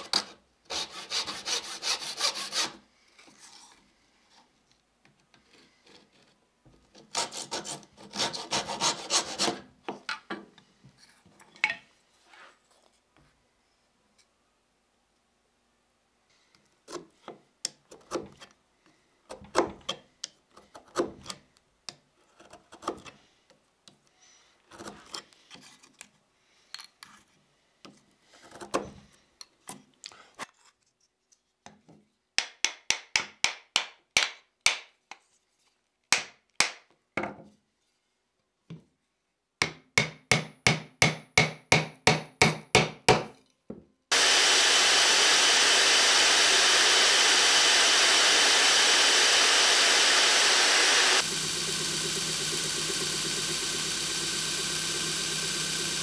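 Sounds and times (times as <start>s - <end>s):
bandsaw running: 0.7s - 2.8s, 44.1s - 56.0s.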